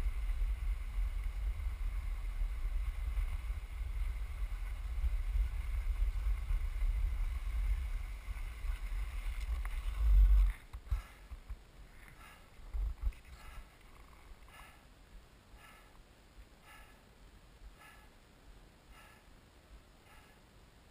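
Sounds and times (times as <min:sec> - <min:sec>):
wind buffeting microphone: 0:00.0 - 0:11.6.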